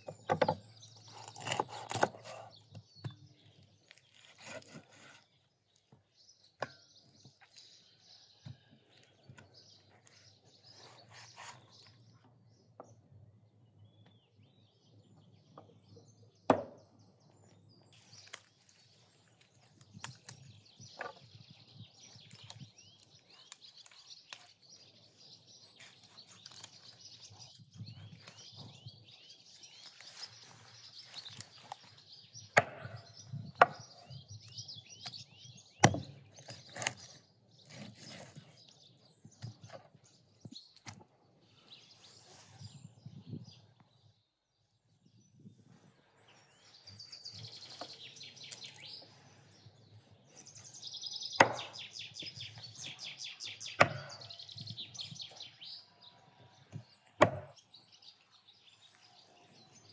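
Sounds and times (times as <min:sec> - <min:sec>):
small birds chirping: 0:00.0 - 0:59.9
knife cutting raw chicken: 0:00.1 - 0:12.1, 0:25.6 - 0:28.7, 0:35.0 - 0:38.8, 0:51.4 - 0:53.0, 0:53.7 - 0:54.3.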